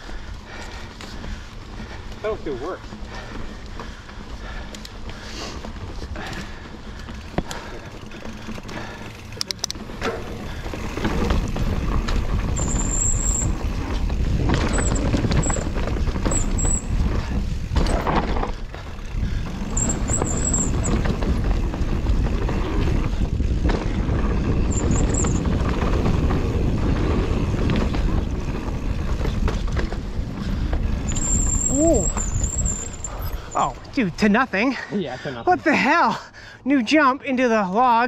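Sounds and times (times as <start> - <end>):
bike knocking and rattling: 0.0 - 34.1
bike tyres on dirt: 0.0 - 36.1
wind rushing over microphone: 10.4 - 33.2.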